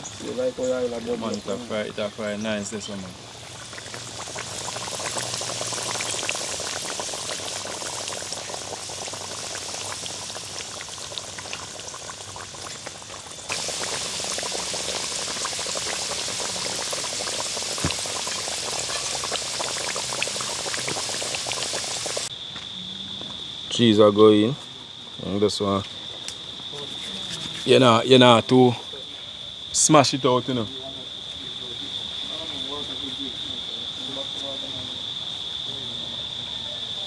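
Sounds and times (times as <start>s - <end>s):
dumplings sizzling in hot oil: 3.4s - 22.3s.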